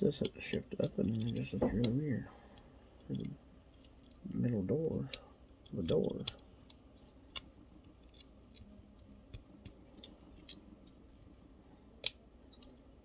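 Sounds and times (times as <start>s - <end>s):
plastic toy parts clicking: 0.2s - 2.0s, 5.0s - 11.3s, 12.0s - 12.8s.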